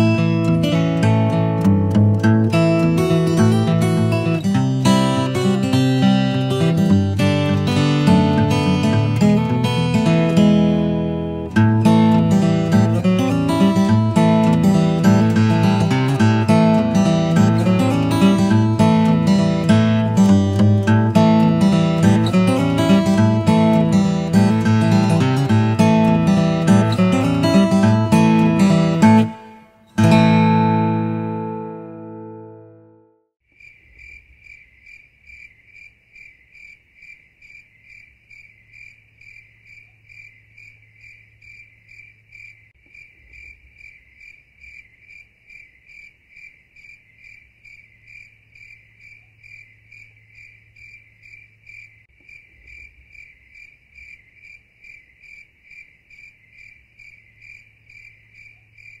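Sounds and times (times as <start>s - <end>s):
insect chirping: 0.0s - 32.6s, 33.4s - 59.0s
acoustic guitar music: 0.0s - 33.3s.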